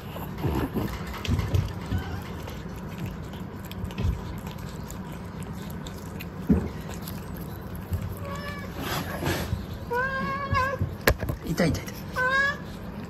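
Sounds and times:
cat meowing: 8.1 - 9.2, 9.9 - 11.0.

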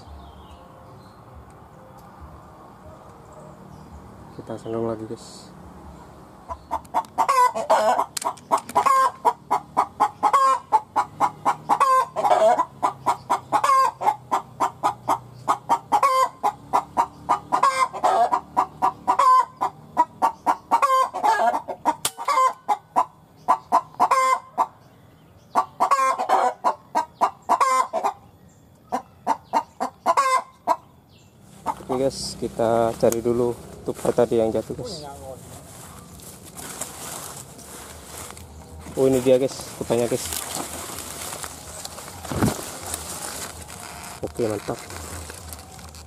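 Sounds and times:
animal clucking calls: 6.4 - 24.8, 25.5 - 28.3, 28.9 - 33.7.

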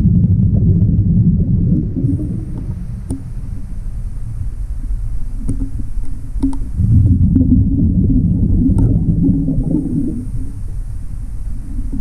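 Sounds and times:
underwater exhaled bubbles: 0.0 - 3.2, 5.4 - 10.7, 11.5 - 12.0.

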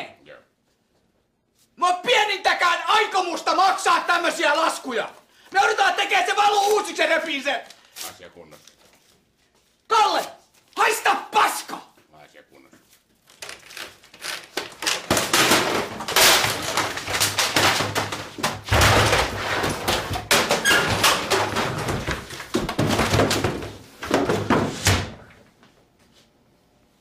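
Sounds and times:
office equipment crashing and banging: 13.5 - 25.4.

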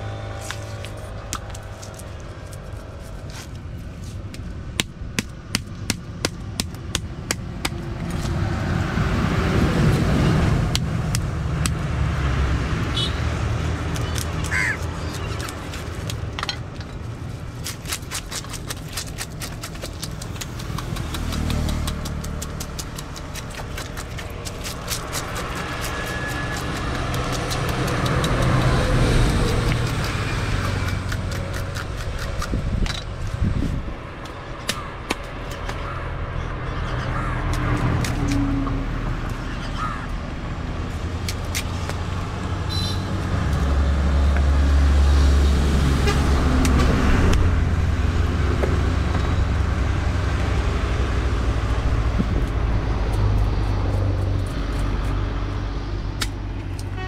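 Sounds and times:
passing traffic rumble: 0.0 - 57.0
knife scraping fish scales: 17.6 - 32.5.

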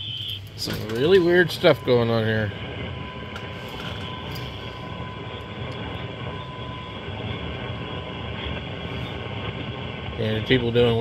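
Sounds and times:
faint steady radio tone: 0.0 - 11.0.

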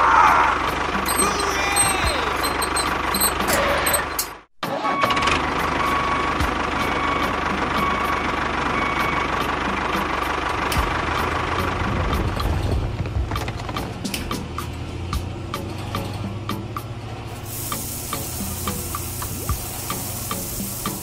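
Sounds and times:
truck engine idling: 0.5 - 4.4, 5.4 - 21.0
toy bricks clattering: 1.1 - 4.4.

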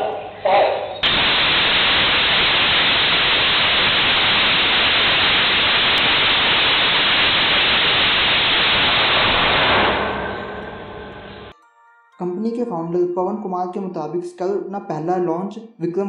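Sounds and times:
rocket engine firing: 1.0 - 11.5.

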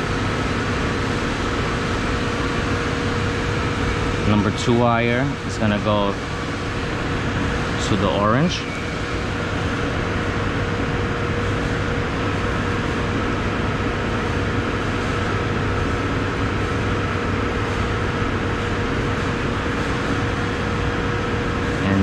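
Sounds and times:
constant hum tone: 0.0 - 22.0
machinery droning: 0.0 - 22.0.

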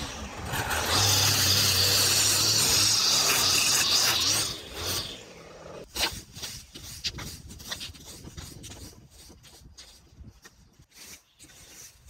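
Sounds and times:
string trimmer engine: 0.0 - 5.9.

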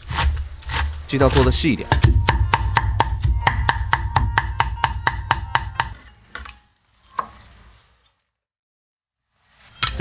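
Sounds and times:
cleaver chopping on wooden block: 0.1 - 6.0.

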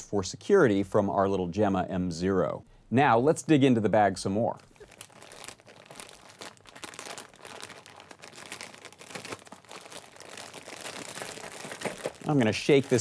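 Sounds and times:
plastic bag crinkling: 4.7 - 13.0.

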